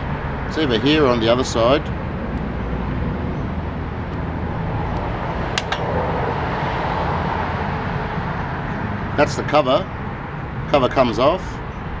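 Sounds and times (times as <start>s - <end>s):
road traffic rumble: 0.0s - 12.0s.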